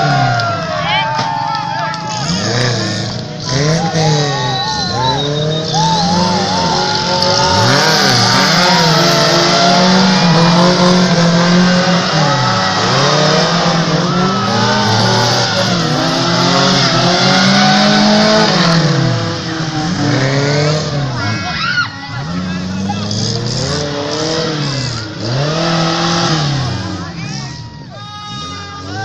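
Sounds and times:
car engine revving: 2.0 - 27.2.

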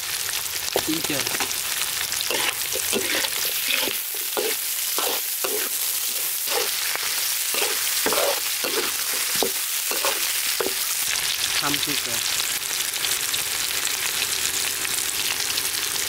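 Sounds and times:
vegetables sizzling in hot oil: 0.0 - 16.0
spatula scraping metal wok: 2.2 - 11.1.

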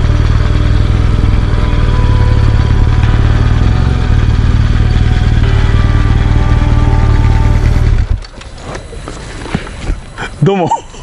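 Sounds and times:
motorcycle engine running: 0.0 - 8.6.

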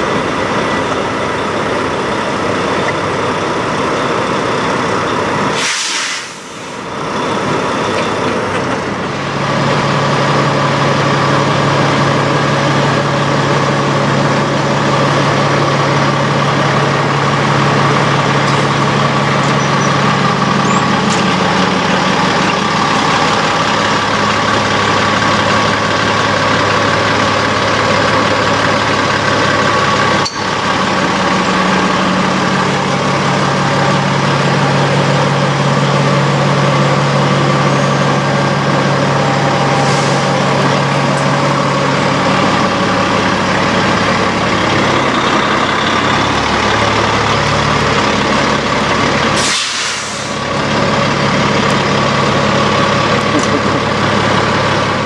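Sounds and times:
diesel truck engine idling: 0.0 - 55.0
air brake hiss: 5.5 - 6.9, 39.8 - 40.4, 49.4 - 50.4.

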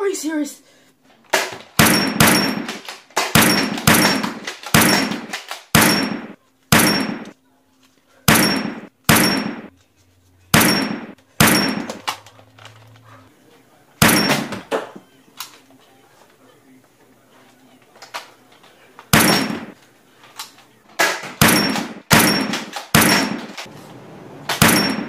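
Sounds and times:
toy blaster shots: 1.4 - 7.3, 8.3 - 9.7, 19.1 - 19.8, 21.0 - 23.6.

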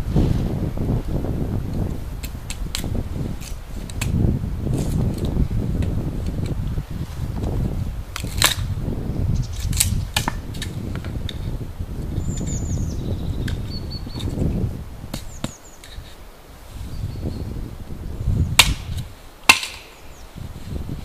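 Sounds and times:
hatchet splitting wood: 8.2 - 8.7, 18.6 - 20.1.

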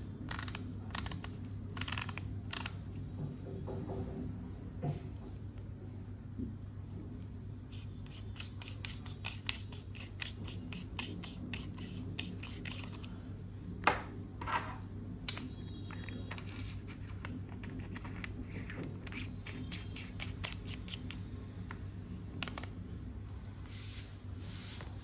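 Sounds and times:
soft scrape: 23.6 - 25.0.

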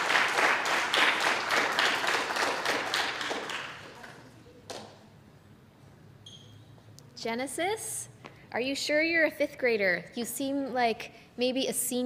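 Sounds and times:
audience applauding: 0.0 - 4.3.

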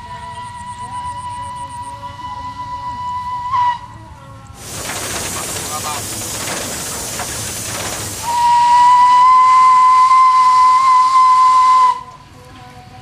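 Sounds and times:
steam whistle: 0.0 - 5.4, 7.7 - 12.3
steam locomotive hissing: 4.5 - 12.3.

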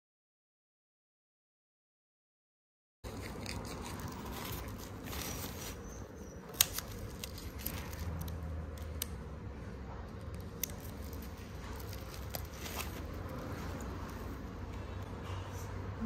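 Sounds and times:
pedicure tools scraping: 3.1 - 9.2
pedicure tools clicking: 6.4 - 9.3.

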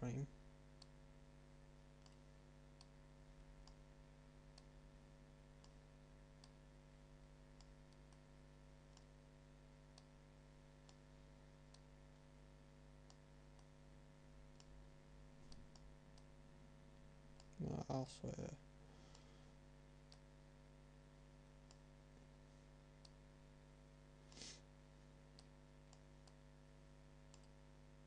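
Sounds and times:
low electrical hum: 0.0 - 28.0
computer mouse clicks: 2.0 - 3.0, 8.9 - 9.1, 14.5 - 14.7, 15.5 - 16.3, 27.3 - 27.6.

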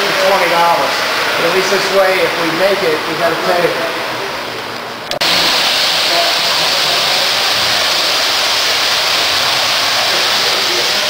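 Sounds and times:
model train rumbling on track: 5.2 - 11.0.

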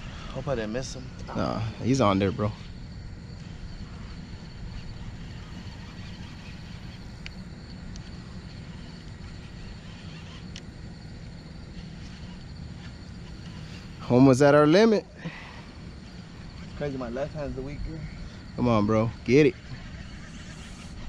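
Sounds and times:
faint ticks: 4.8 - 14.0.

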